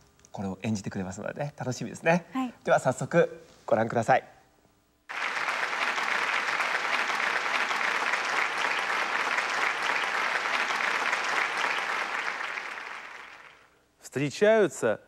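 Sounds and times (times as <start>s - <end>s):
audience applauding: 5.1s - 13.7s.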